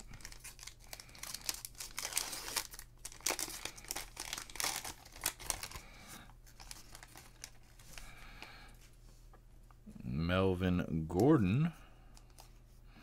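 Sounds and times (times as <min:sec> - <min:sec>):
plastic wrapper crinkling: 0:00.0 - 0:08.5.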